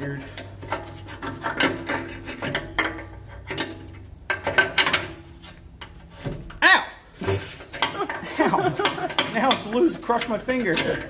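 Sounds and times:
rasping metal scrapes: 0.1 - 3.7.

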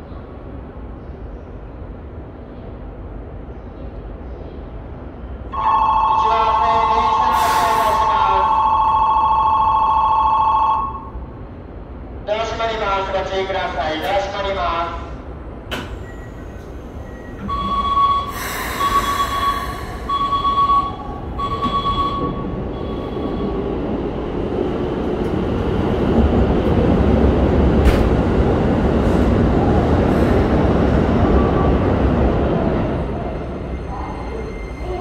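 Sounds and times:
door-closing warning beeps: 15.7 - 23.6
train pulling out: 15.7 - 35.0.

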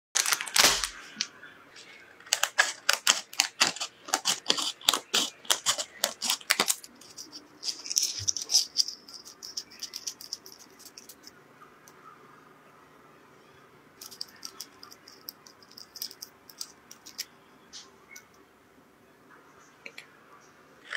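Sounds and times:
paper and plastic crinkling: 0.2 - 11.3.

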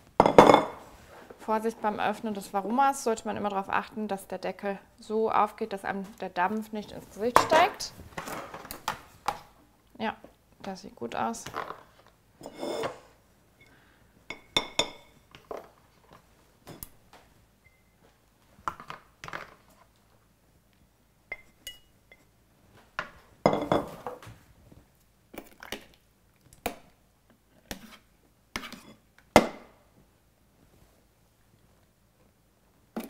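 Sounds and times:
metal spoon clinking on plates: 21.3 - 22.3.

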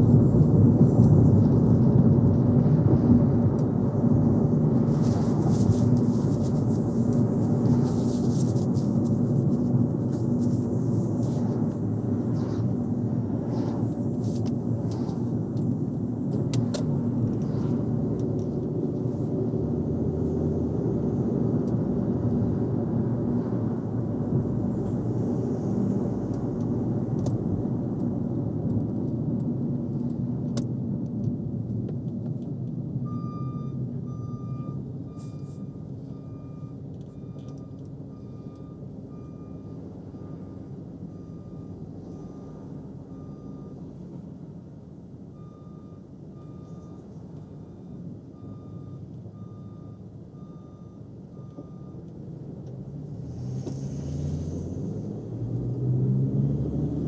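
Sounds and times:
car road and engine rumble: 0.0 - 57.0
reversing alarm beeps: 33.0 - 43.9, 45.3 - 52.0.

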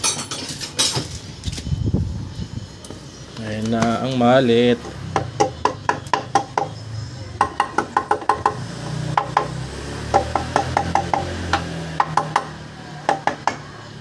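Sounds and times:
rubber mallet knocking on metal cover: 7.4 - 8.6.

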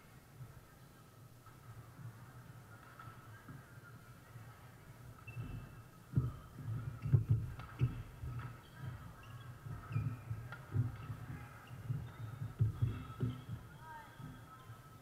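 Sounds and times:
shoe squeaks: 5.2 - 14.1.

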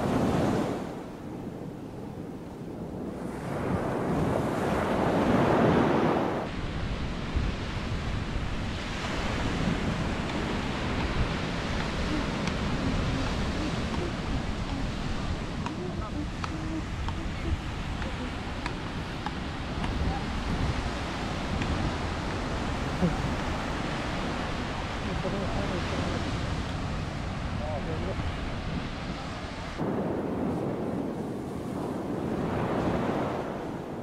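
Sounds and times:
ocean surf breaking: 0.0 - 34.0
wind buffeting microphone: 0.0 - 34.0.

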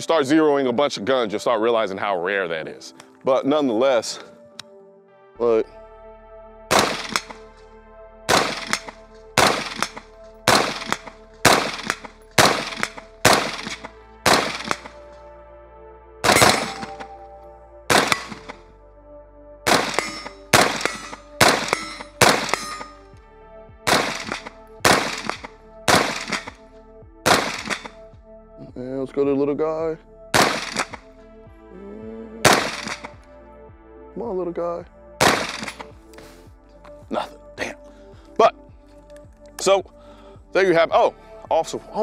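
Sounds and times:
rifle shots with echo: 6.7 - 7.4, 8.3 - 15.0, 16.2 - 17.1, 17.9 - 18.6, 19.7 - 23.0, 23.9 - 26.6, 27.2 - 28.0, 30.3 - 31.0, 32.5 - 33.2, 35.2 - 35.9.

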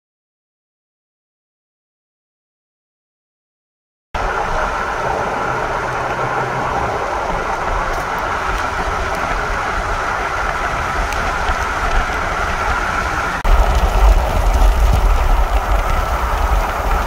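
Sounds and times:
road and wind noise inside vehicle: 4.2 - 17.0.

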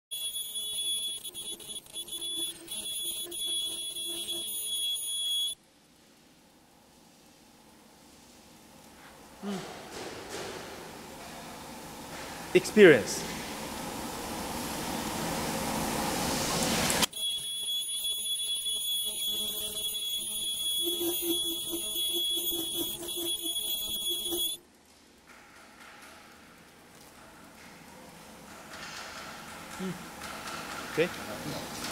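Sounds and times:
machine high-pitched whine: 0.1 - 5.6, 17.0 - 24.6.

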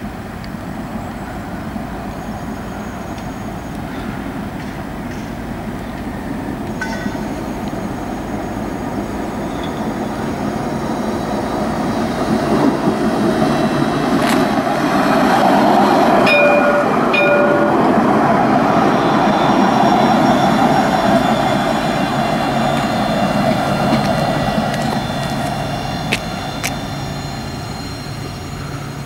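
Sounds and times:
tram rumbling on rails: 0.0 - 29.0
short pitched beeps: 16.3 - 18.0.

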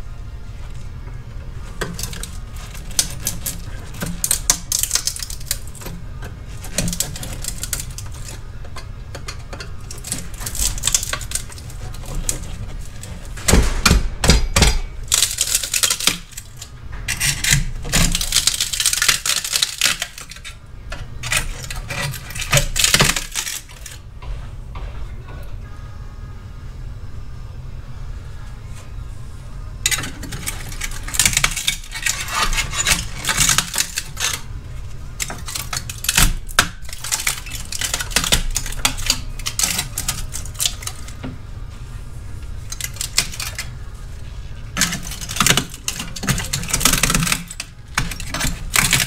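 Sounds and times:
metal clicks and scratches: 1.6 - 13.9, 14.5 - 24.0, 29.8 - 41.3, 42.6 - 49.0
screwdriver scraping metal: 1.8 - 13.4, 15.1 - 20.5, 21.2 - 24.0, 29.9 - 34.4.

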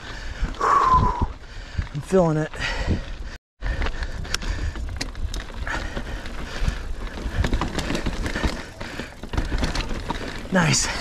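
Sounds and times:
bike tyres on rock: 0.0 - 11.0
bike chain and frame clattering: 3.7 - 11.0.

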